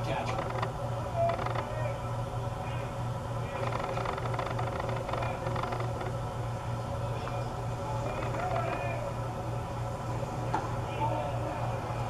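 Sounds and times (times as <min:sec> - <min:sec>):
steady low hum: 0:00.0 - 0:12.0
crowd chatter: 0:05.0 - 0:12.0.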